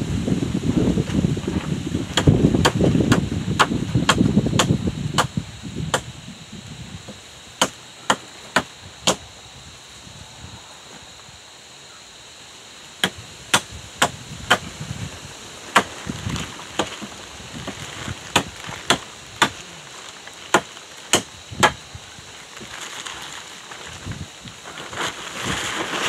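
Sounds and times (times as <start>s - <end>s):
hand tool striking logs: 2.2s - 5.3s, 7.6s - 9.2s, 15.7s - 15.9s, 18.3s - 19.6s, 20.5s - 21.8s.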